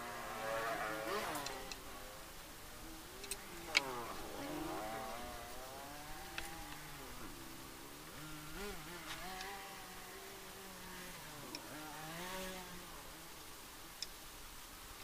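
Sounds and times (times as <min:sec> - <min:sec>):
faint engine revving: 0:00.0 - 0:14.1
light ticks: 0:03.2 - 0:03.9, 0:09.0 - 0:09.6, 0:11.4 - 0:11.7, 0:14.0 - 0:14.2.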